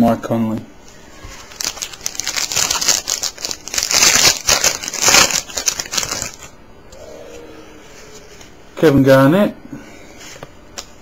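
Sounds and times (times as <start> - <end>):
foil wrapper crinkling: 1.3 - 6.6.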